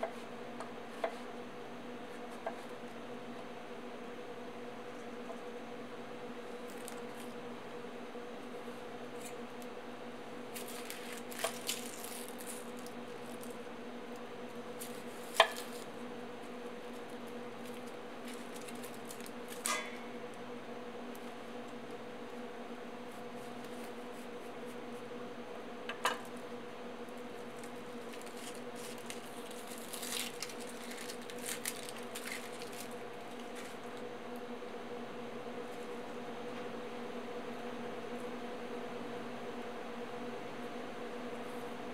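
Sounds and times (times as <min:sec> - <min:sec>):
steady low hum: 0:00.0 - 0:41.9
onion skin crackling rustles: 0:10.5 - 0:13.7, 0:14.6 - 0:19.8, 0:27.2 - 0:34.0.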